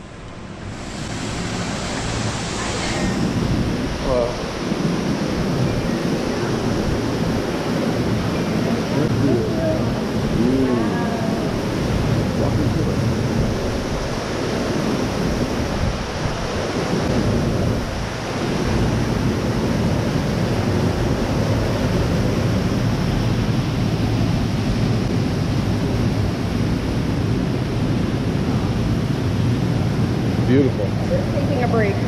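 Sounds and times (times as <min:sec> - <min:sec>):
indoor waterfall splashing on rocks: 0:00.2 - 0:31.0.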